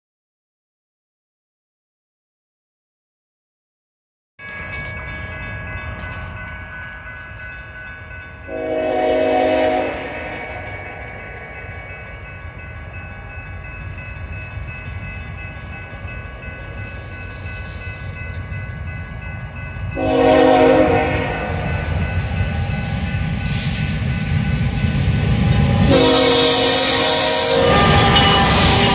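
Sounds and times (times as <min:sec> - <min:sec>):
railroad crossing bells ringing: 0:04.4 - 0:28.9
diesel freight train rumble: 0:04.5 - 0:28.9
locomotive air horn blast: 0:08.5 - 0:10.7, 0:20.0 - 0:21.6, 0:25.8 - 0:28.9.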